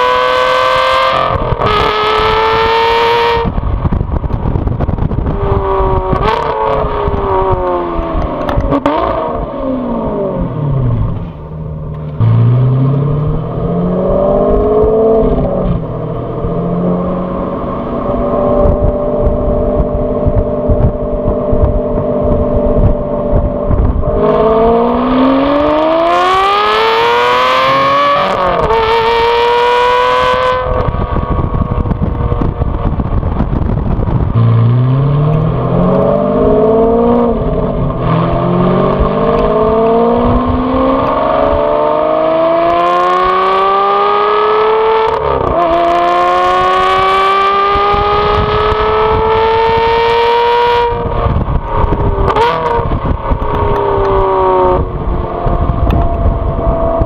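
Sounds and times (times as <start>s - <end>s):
car engine and exhaust revving: 0.0s - 57.0s.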